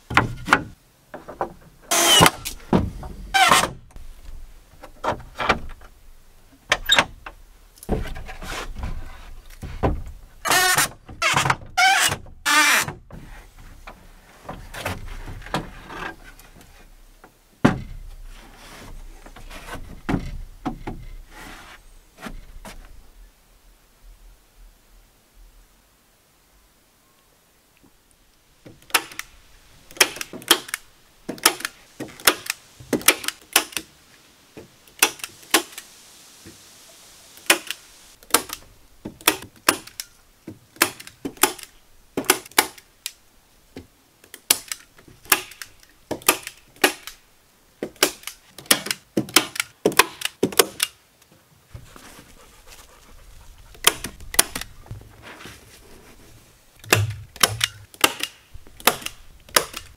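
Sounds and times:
staple gun snapping into wood: 29.9 - 33.8, 40.8 - 42.8, 44.3 - 47.2, 48.0 - 51.0, 56.8 - 59.9.

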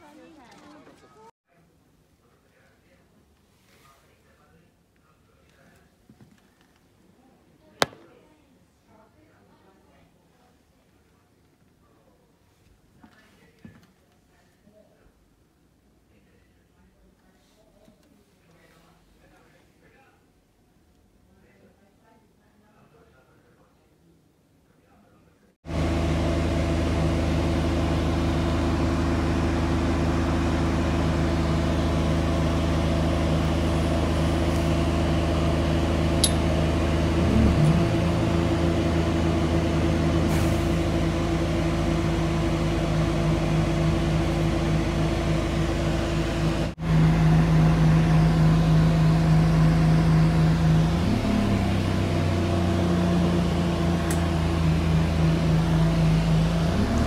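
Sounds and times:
bus engine humming: 25.7 - 57.0.

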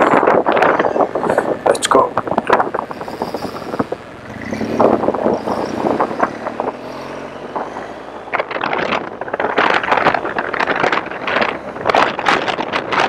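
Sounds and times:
motorcycle accelerating: 0.0 - 13.0
wind buffeting on microphone: 0.0 - 13.0.

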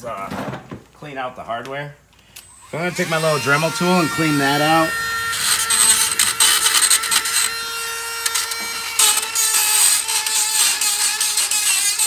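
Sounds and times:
rotary tool grinding metal: 2.4 - 12.0.

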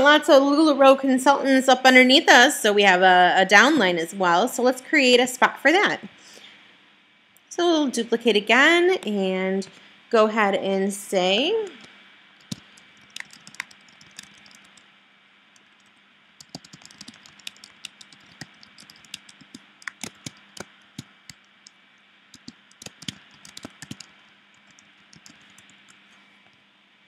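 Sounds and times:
computer keyboard typing: 12.4 - 14.8, 15.6 - 26.0.

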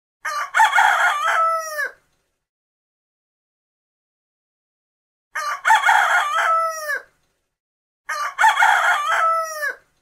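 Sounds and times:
rooster crowing: 0.2 - 2.0, 5.3 - 7.1, 8.1 - 9.9.

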